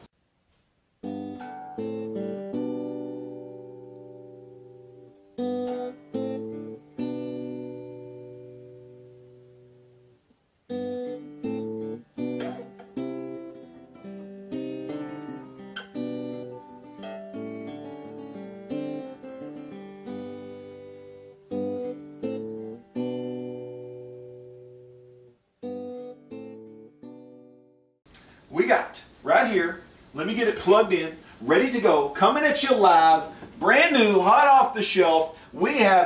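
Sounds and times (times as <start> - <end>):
strummed acoustic guitar chords: 1.0 - 27.8.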